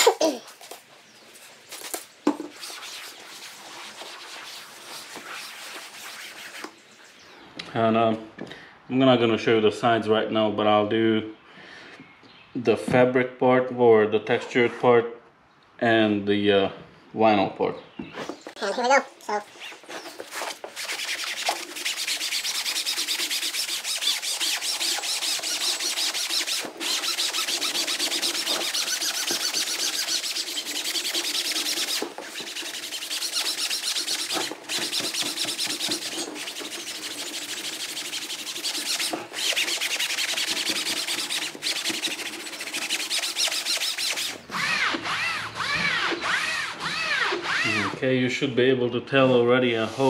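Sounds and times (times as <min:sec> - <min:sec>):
foam pad scrubbing upholstery: 0:02.5 - 0:06.8, 0:19.5 - 0:44.4.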